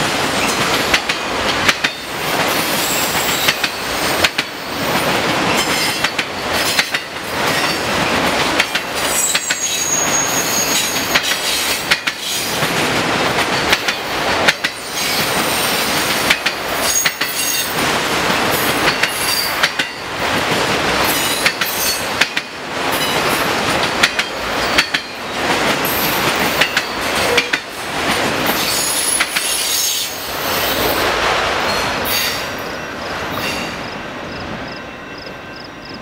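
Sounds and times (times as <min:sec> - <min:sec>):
train wheels on rails: 0:00.0 - 0:36.0
wheel squeals: 0:09.1 - 0:11.3.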